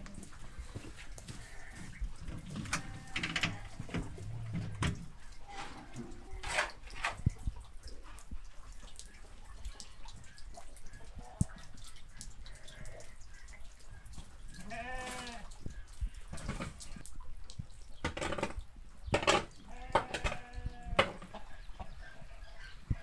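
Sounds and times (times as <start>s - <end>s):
rain dripping: 0.0s - 19.8s
sheep or goats bleating: 2.6s - 3.9s, 14.6s - 15.5s, 19.7s - 21.0s.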